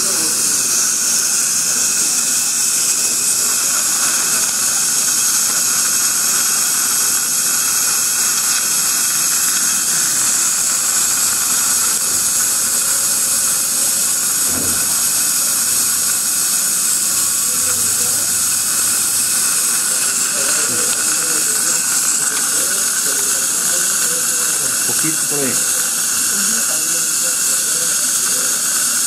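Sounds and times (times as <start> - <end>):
dental equipment hissing: 0.0 - 29.0.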